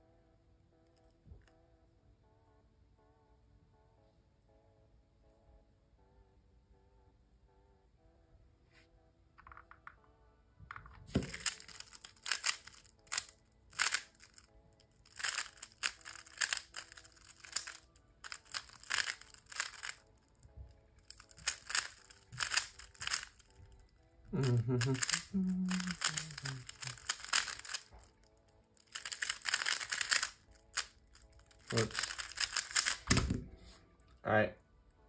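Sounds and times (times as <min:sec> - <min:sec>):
faint background music: 0:00.0 - 0:35.0
speed cube clicking: 0:11.1 - 0:23.8, 0:24.4 - 0:33.3.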